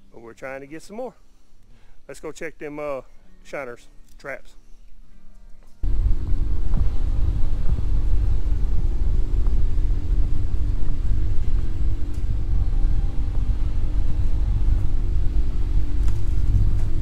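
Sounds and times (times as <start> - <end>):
low rumble on dirt track: 5.8 - 17.0
vehicle engine running: 5.8 - 17.0.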